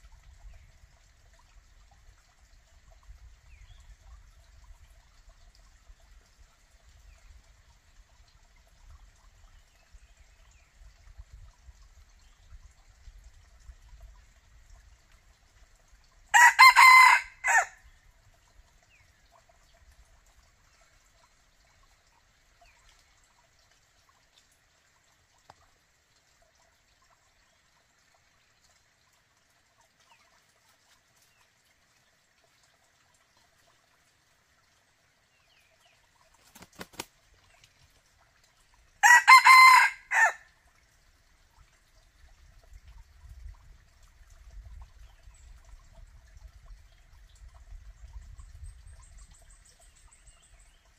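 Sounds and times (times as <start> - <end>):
rooster crowing: 16.4 - 17.7, 39.0 - 40.4.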